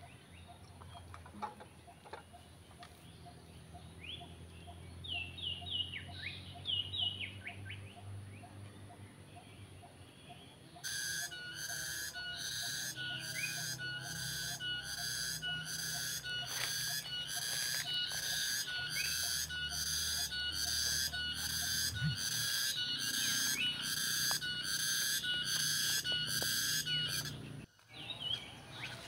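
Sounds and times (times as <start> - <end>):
insect pulsing whistle call: 10.9 - 27.4
short rising chirps: 13.7 - 27.5.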